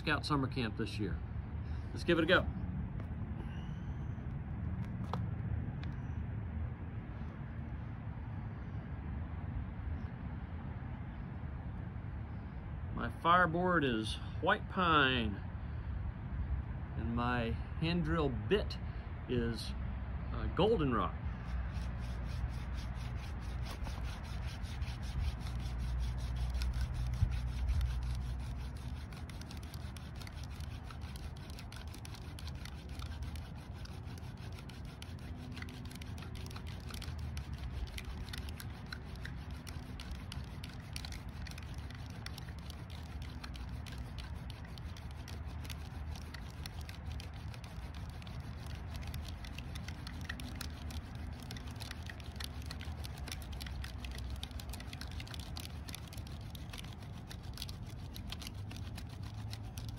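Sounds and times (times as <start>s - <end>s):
hand drill rubbing on fireboard: 20.6s - 59.9s.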